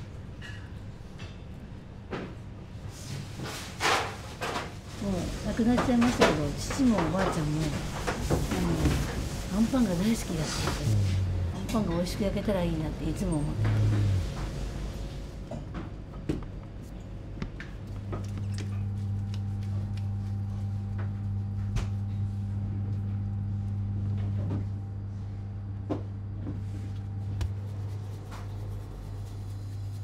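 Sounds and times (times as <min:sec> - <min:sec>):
low machine hum: 0:00.0 - 0:30.0.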